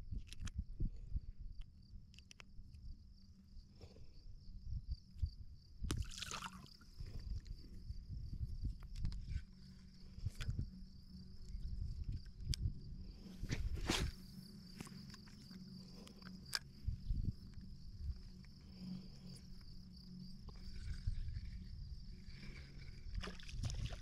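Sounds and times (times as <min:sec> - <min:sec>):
high-pitched insect chorus: 0:00.5 - 0:24.0
low rumble of handling noise: 0:06.7 - 0:24.0.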